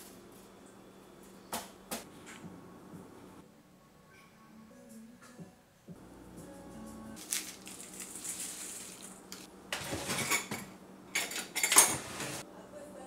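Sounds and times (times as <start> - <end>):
kitchenware clattering on steel: 9.8 - 12.4.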